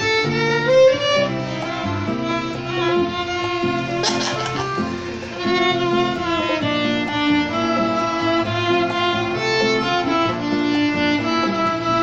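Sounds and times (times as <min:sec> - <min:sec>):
bass accompaniment: 0:00.0 - 0:12.0
violin melody: 0:00.0 - 0:12.0.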